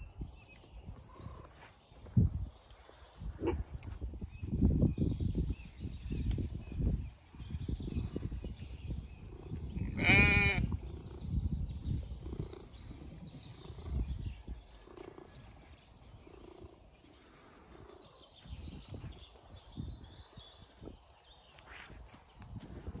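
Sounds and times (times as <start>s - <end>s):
sheep bleating: 9.8s - 10.7s.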